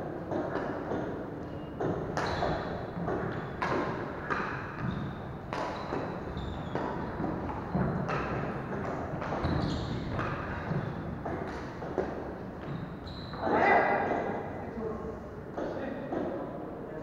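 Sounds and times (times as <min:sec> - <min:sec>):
rackets hitting shuttlecock: 0:01.8 - 0:12.8.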